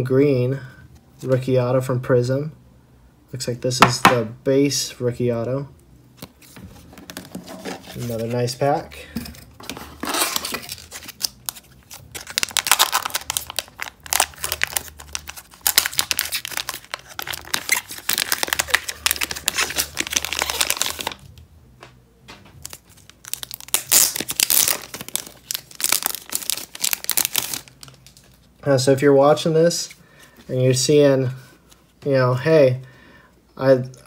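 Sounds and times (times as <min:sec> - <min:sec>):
plastic wrapper crinkling and tearing: 0:09.7 - 0:21.4, 0:22.6 - 0:28.5.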